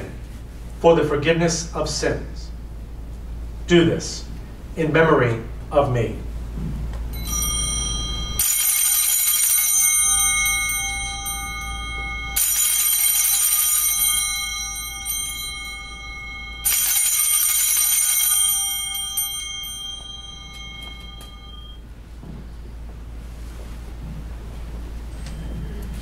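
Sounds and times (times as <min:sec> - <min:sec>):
small bells jangling: 0:07.1 - 0:21.8.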